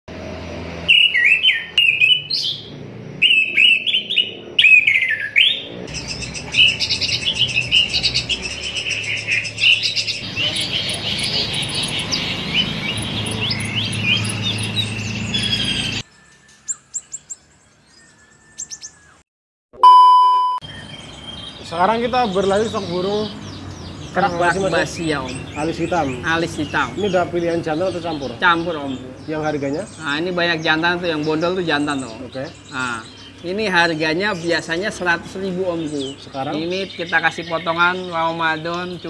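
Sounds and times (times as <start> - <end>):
songbirds singing: 0.1 - 19.2, 20.6 - 39.0
short electronic beep: 19.8 - 20.7.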